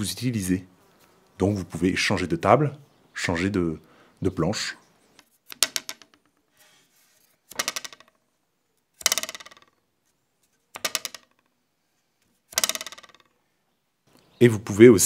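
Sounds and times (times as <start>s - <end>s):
wooden stick rattling against wood: 5.1s - 11.6s, 12.2s - 13.4s.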